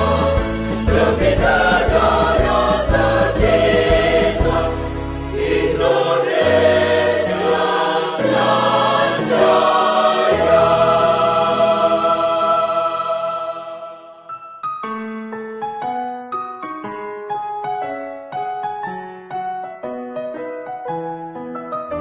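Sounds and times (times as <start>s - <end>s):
choir singing: 0.0s - 14.3s.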